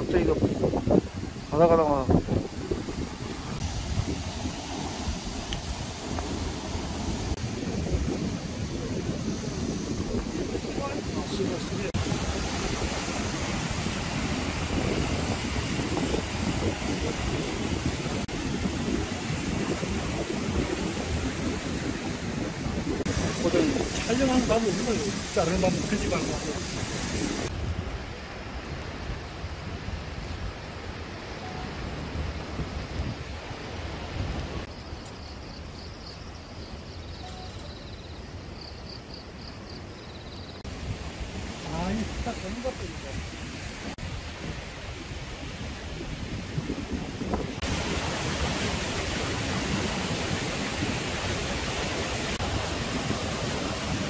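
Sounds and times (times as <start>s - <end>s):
waves breaking on rocky shore: 0.0s - 34.7s, 40.6s - 54.0s
wind buffeting microphone: 0.0s - 34.7s, 40.6s - 54.0s
faint high chirping: 34.8s - 40.6s.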